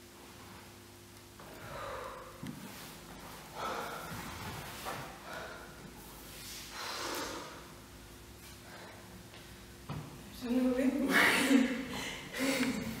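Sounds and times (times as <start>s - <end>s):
low electrical hum: 0.0s - 13.0s
woman breathing heavily: 1.4s - 7.8s, 8.4s - 9.5s, 11.2s - 13.0s.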